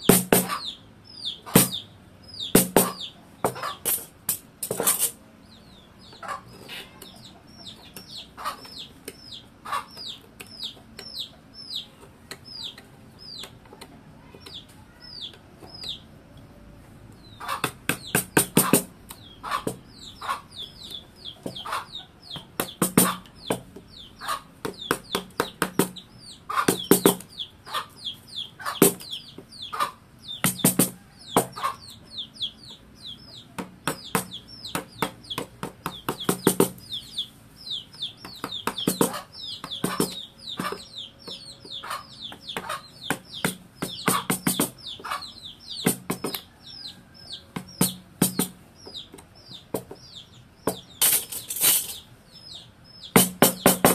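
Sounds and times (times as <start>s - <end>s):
bird chirping: 0.0s - 53.9s
mallet tapping chisel into wood: 43.1s - 44.8s.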